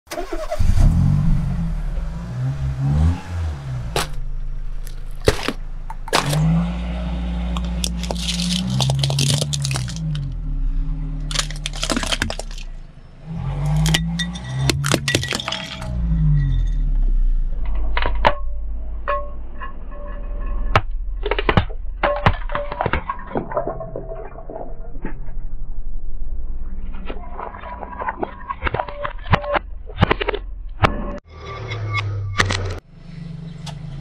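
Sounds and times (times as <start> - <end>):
plastic objects crunching under tyre: 3.8 - 6.7, 7.5 - 10.4, 11.2 - 12.8, 13.6 - 15.9.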